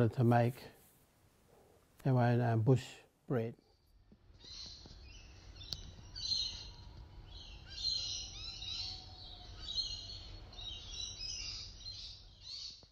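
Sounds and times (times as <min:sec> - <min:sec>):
small birds chirping: 0:03.3 - 0:12.9.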